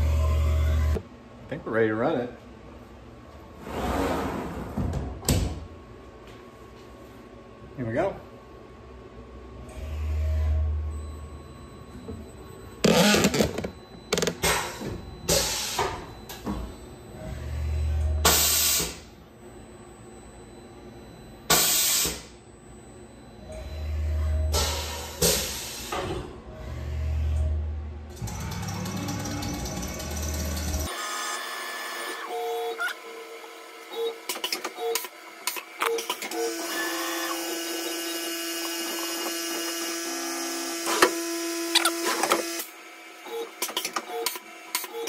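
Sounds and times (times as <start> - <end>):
milling machine spindle whine: 36.4 - 42.7.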